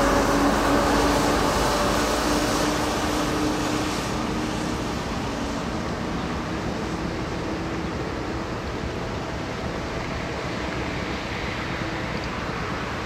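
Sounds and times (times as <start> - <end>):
rumble and hiss: 0.0 - 13.0.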